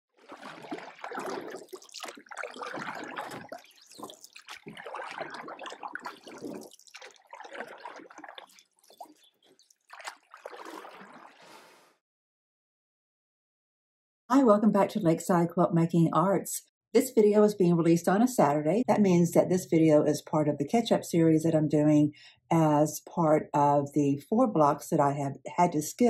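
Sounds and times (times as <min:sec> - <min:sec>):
water splashing and trickling: 0:00.1 - 0:12.0.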